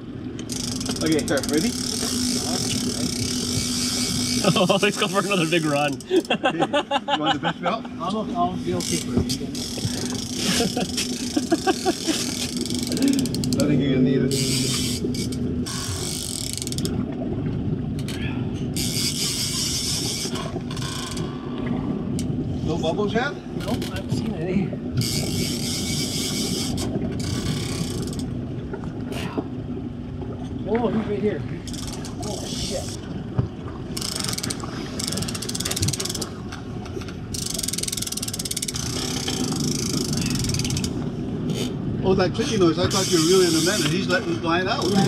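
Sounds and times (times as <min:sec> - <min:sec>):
fishing reel drag clicking: 0:00.4 - 0:04.5, 0:08.8 - 0:13.7, 0:14.3 - 0:16.9, 0:18.8 - 0:21.3, 0:25.0 - 0:28.3, 0:31.7 - 0:33.0, 0:34.0 - 0:36.3, 0:37.3 - 0:41.7, 0:42.9 - 0:44.1
steady low rumble: 0:16.8 - 0:27.4.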